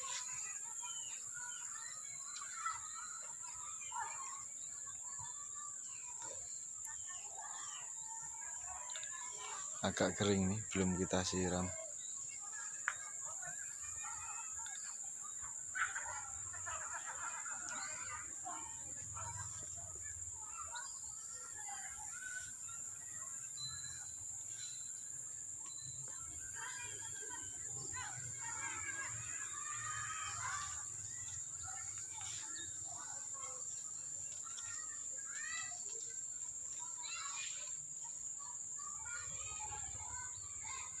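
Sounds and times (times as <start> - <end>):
bird chirps: 19.2 - 41.0.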